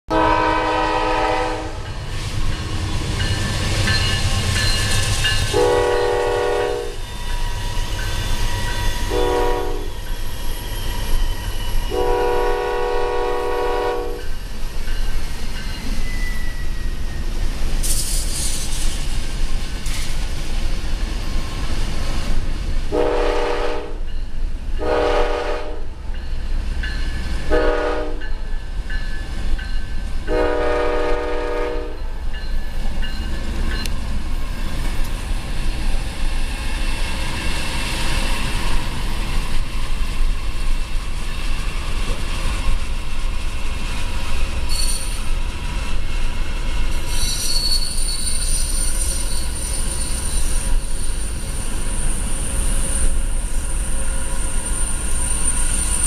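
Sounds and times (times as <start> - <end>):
locomotive air horn chord: 0.1 - 1.9, 5.5 - 7.0, 9.1 - 9.9, 11.9 - 14.2, 22.9 - 24.0, 24.8 - 25.9, 27.5 - 28.2, 30.3 - 32.0.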